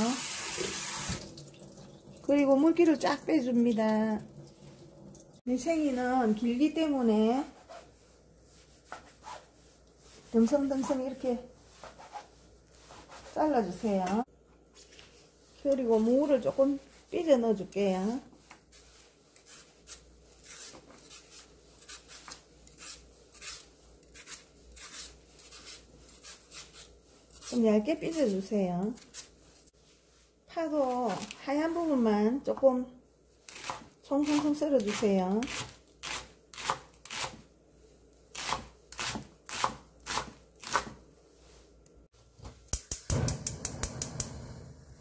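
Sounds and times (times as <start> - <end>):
knife scraping slices off radish: 18.7 - 29.4
knife chopping on wooden board: 38.4 - 41.0.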